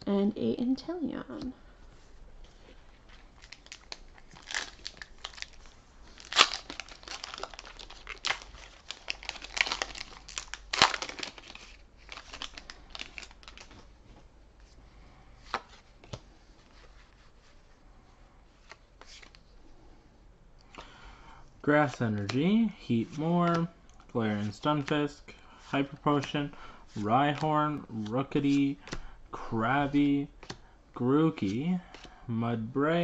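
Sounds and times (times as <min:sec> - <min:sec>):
foil wrapper tearing and crinkling: 0:03.4 - 0:13.8.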